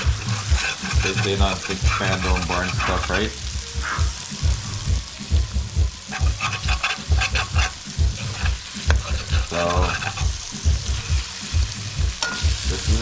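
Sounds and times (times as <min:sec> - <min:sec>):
metal spoon scraping pan: 0:00.0 - 0:04.0, 0:06.0 - 0:13.0
oil sizzling: 0:00.0 - 0:13.0.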